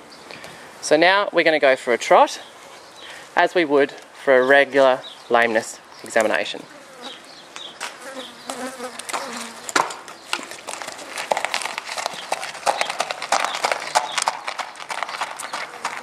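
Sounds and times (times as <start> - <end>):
horse hooves trotting on dirt: 7.1 - 16.0.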